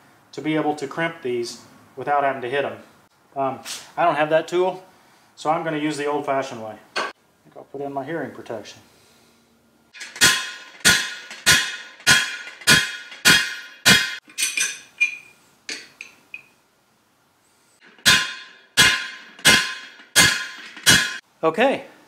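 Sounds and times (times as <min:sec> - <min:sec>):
hammer striking metal ringing: 0:10.2 - 0:15.3, 0:18.0 - 0:21.2
light taps and clinks: 0:14.3 - 0:16.6.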